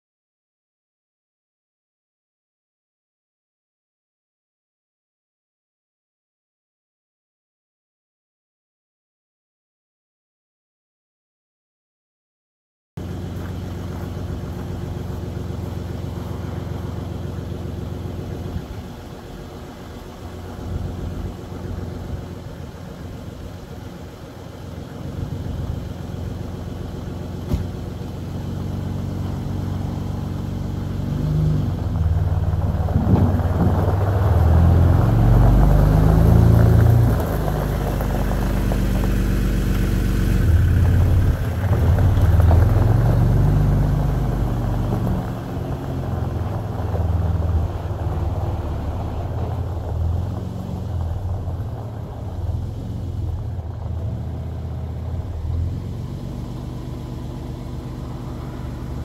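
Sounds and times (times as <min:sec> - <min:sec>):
truck diesel engine running: 0:13.0 - 0:59.0
tyres on gravel: 0:13.0 - 0:59.0.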